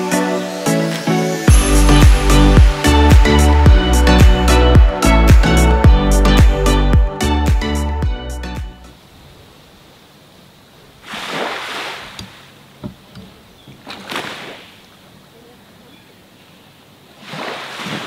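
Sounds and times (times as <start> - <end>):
light water splashes: 11.0 - 15.3, 17.1 - 18.0
waves washing onto a beach: 17.2 - 18.0.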